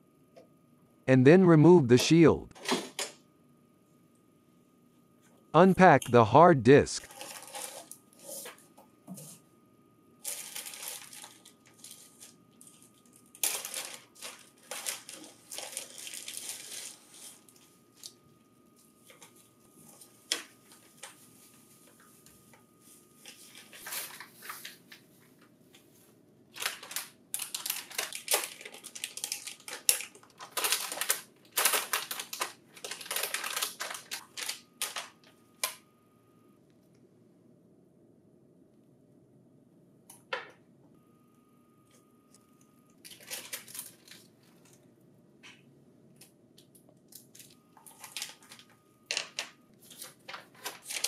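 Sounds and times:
plastic packaging crinkling: 7.1 - 8.0, 10.2 - 18.2, 26.5 - 35.3, 43.0 - 44.8, 47.1 - 51.0.

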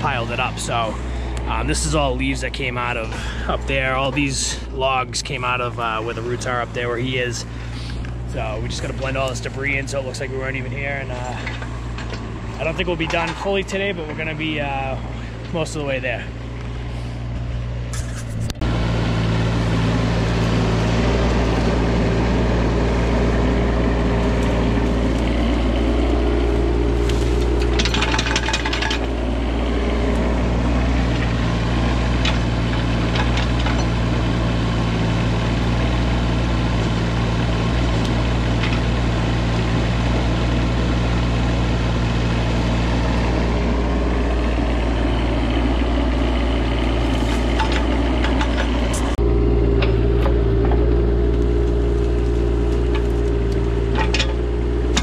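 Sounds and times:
excavator diesel engine running: 0.0 - 55.0
crackling: 49.8 - 55.0.

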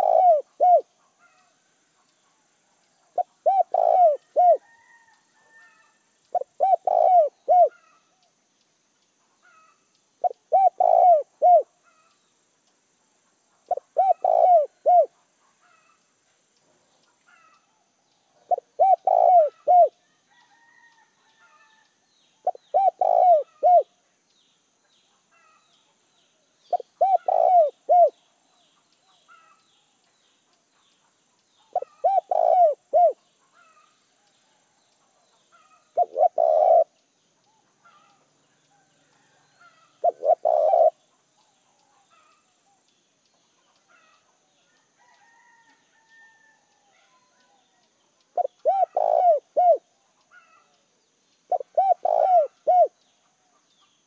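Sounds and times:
dove cooing: 0.0 - 1.4, 3.1 - 8.0, 9.4 - 12.1, 13.7 - 15.9, 18.4 - 19.9, 22.4 - 23.9, 26.7 - 28.2, 31.7 - 33.9, 35.6 - 37.0, 37.8 - 41.0, 48.3 - 50.7, 51.5 - 53.0
birds chirping: 0.0 - 54.0.

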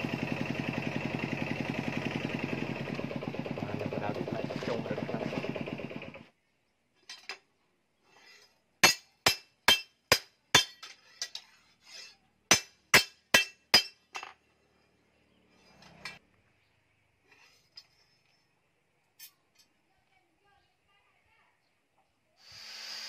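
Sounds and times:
engine-like hum: 0.0 - 6.4, 13.6 - 18.8
hammer striking metal on anvil: 8.8 - 10.9, 12.5 - 14.3.

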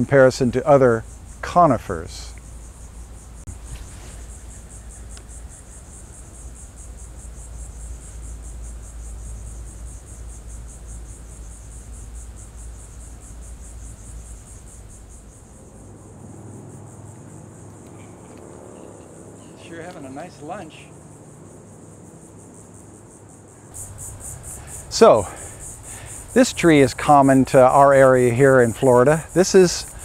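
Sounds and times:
insects trilling: 0.0 - 30.0.

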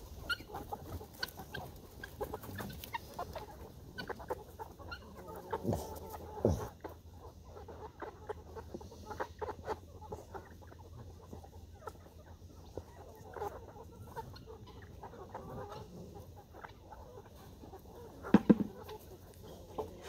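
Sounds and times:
chickens clucking: 0.0 - 20.0.

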